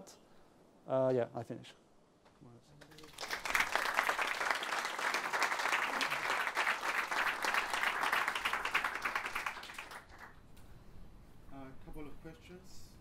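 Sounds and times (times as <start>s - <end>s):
audience applauding: 2.8s - 10.4s.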